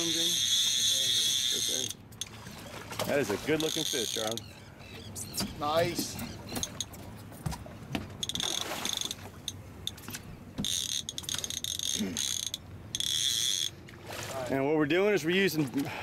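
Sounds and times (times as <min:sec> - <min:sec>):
fishing reel whirring: 0:00.0 - 0:02.3, 0:03.6 - 0:04.5, 0:08.2 - 0:09.2, 0:10.6 - 0:13.8
small reel clicks: 0:00.0 - 0:02.3, 0:08.2 - 0:13.7.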